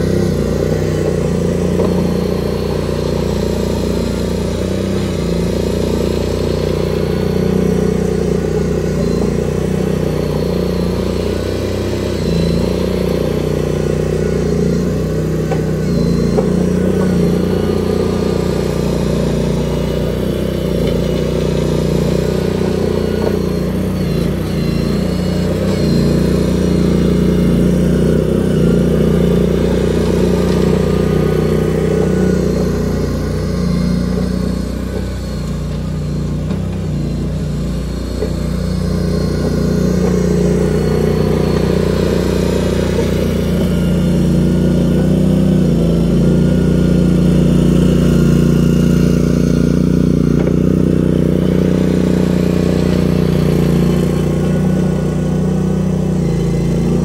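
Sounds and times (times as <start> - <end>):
skid steer engine under load: 0.0 - 57.0.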